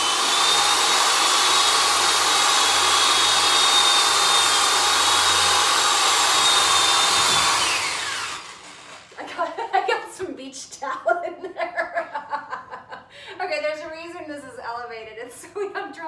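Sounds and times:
electric drill boring into wood: 0:00.0 - 0:09.2.

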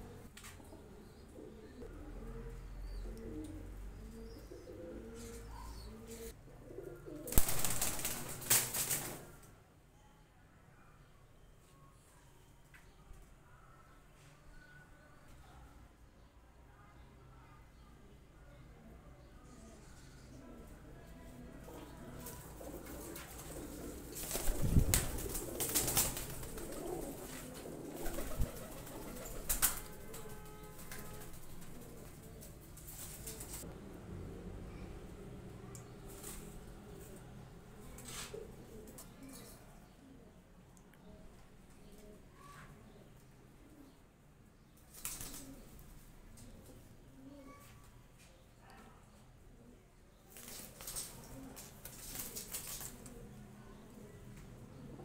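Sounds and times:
pigeons cooing: 0:00.0 - 0:09.3, 0:21.6 - 0:35.2, 0:45.2 - 0:47.6, 0:50.4 - 0:55.0
wings flapping: 0:07.2 - 0:09.4, 0:22.2 - 0:33.6, 0:44.9 - 0:45.6, 0:50.3 - 0:53.2.

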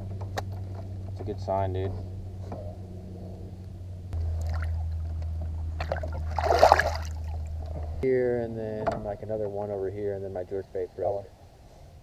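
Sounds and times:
steady low hum: 0:00.0 - 0:12.0
fish splashing into water: 0:04.4 - 0:05.0, 0:05.8 - 0:07.5.

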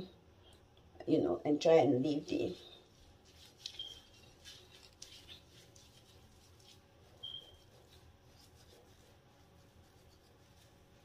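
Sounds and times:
fingers rustling through hair: 0:02.0 - 0:11.0
brief high squeaks: 0:07.2 - 0:07.6.

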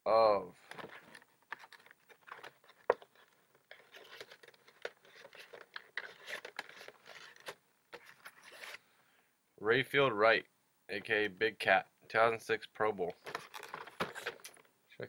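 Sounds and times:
plastic packaging crinkling: 0:01.6 - 0:08.8.

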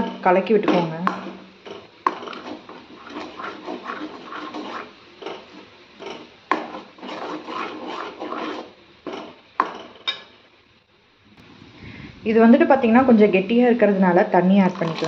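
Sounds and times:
ladle scraping metal pan: 0:01.7 - 0:09.4.

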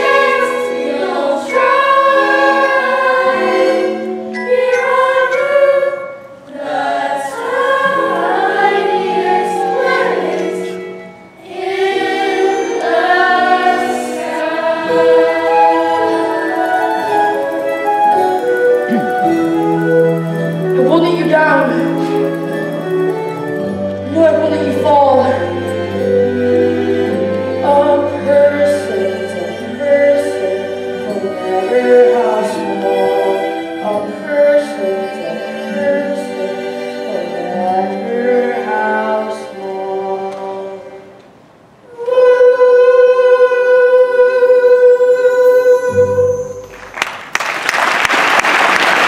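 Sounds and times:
stage musical song with singers: 0:00.0 - 0:49.0
audience applause: 0:46.7 - 0:49.0.

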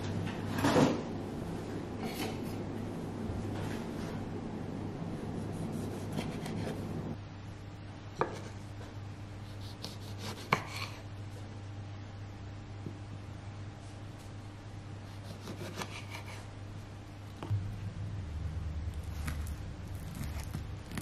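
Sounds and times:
knife slicing tomatoes: 0:15.1 - 0:16.5.

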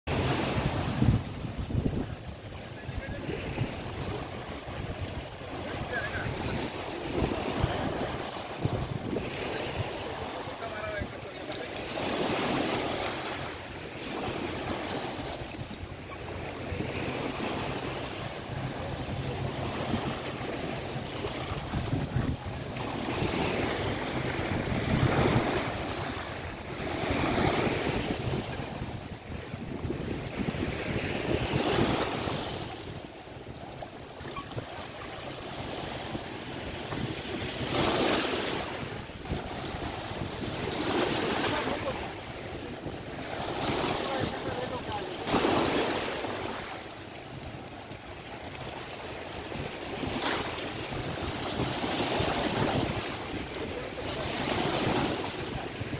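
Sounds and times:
wind buffeting microphone: 0:00.1 - 0:11.2, 0:12.0 - 0:55.9
waves washing over pebbly shore: 0:16.2 - 0:47.3.

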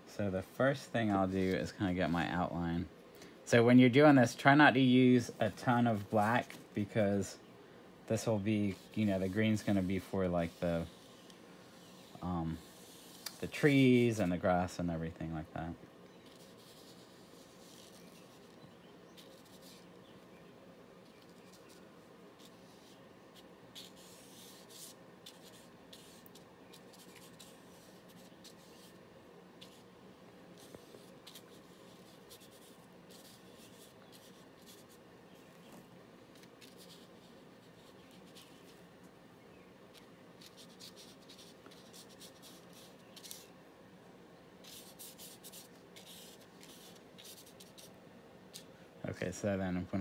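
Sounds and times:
faint low hum: 0:00.0 - 0:50.0
paintbrush swishing on paper: 0:05.1 - 0:07.2, 0:08.1 - 0:14.7, 0:16.2 - 0:19.9, 0:21.0 - 0:29.0, 0:29.6 - 0:29.9, 0:39.9 - 0:43.6, 0:44.6 - 0:48.7.

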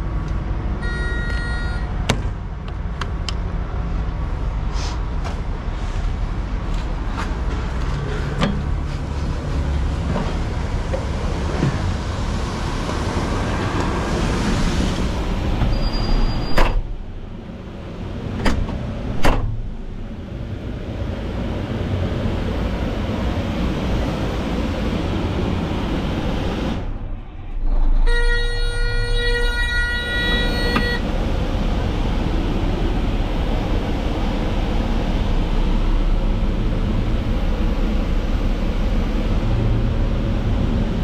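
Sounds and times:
cab door and latch clunks: 0:18.3 - 0:19.7
diesel engine idling: 0:28.8 - 0:41.0.

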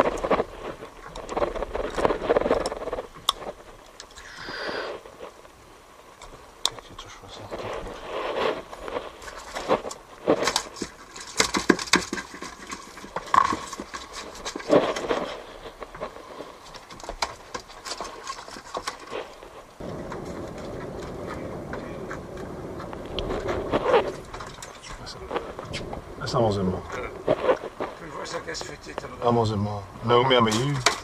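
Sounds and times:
steady rushing noise: 0:00.0 - 0:11.3, 0:18.9 - 0:31.0
knocks and clatter of handling: 0:09.2 - 0:20.3, 0:30.4 - 0:31.0.

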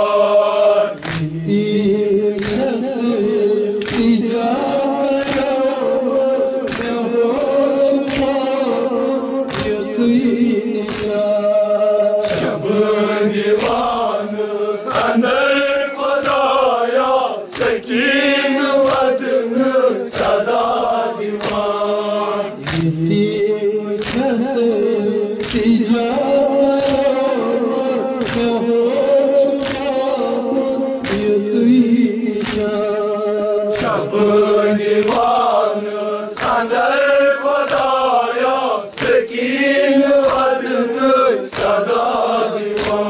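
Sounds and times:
men chanting together: 0:00.0 - 0:43.0
hands slapping chests: 0:00.9 - 0:01.7, 0:02.3 - 0:02.8, 0:03.8 - 0:05.7, 0:06.6 - 0:08.6, 0:09.4 - 0:10.2, 0:10.8 - 0:11.3, 0:12.2 - 0:15.3, 0:16.0 - 0:19.4, 0:20.0 - 0:23.3, 0:24.0 - 0:24.6, 0:25.4 - 0:25.8, 0:26.8 - 0:28.6, 0:29.4 - 0:30.1, 0:31.0 - 0:31.4, 0:32.3 - 0:32.9, 0:33.7 - 0:43.0.

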